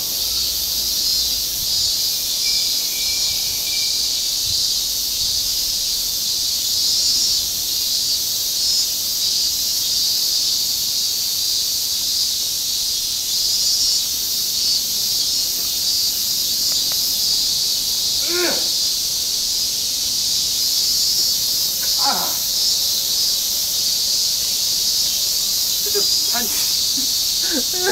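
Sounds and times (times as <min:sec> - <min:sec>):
cicada chorus: 0:00.0 - 0:27.9.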